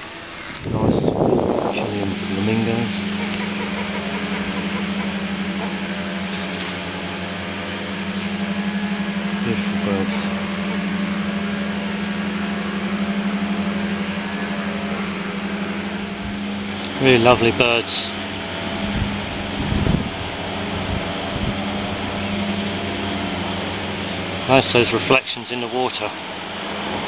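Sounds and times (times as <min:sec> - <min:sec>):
petrol strimmer running: 0:00.0 - 0:27.0.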